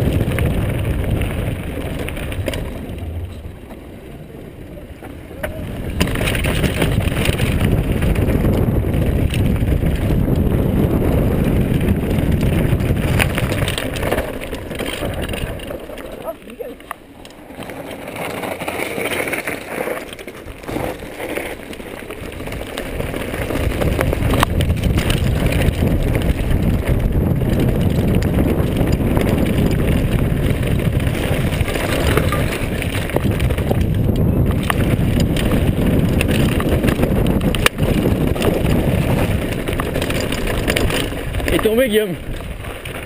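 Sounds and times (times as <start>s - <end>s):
wind on microphone: 0.0s - 16.7s, 22.2s - 43.0s
bike knocking and rattling: 0.0s - 43.0s
tyres on loose gravel: 0.0s - 43.0s.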